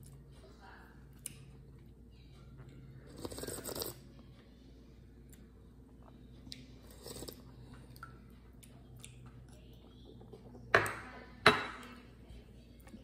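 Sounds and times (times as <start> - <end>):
slurping broth from spoon: 3.1 - 4.0, 6.8 - 7.6.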